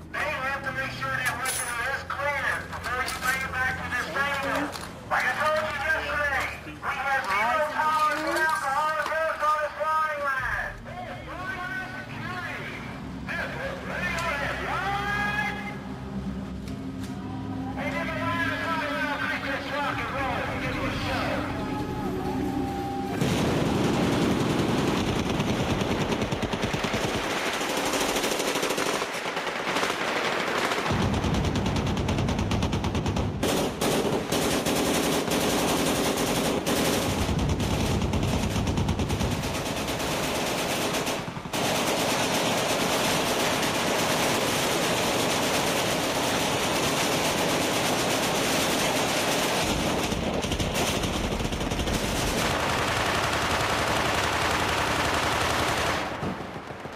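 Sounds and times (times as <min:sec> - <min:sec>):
machine-gun fire: 0:23.2 - 0:56.9.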